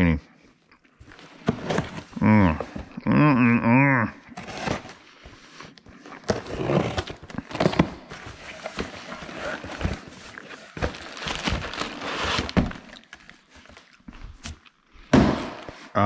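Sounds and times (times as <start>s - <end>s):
knife cutting cardboard box: 1.3s - 2.1s, 4.4s - 5.0s, 6.2s - 12.9s
bubble wrap crinkling: 7.1s - 14.7s.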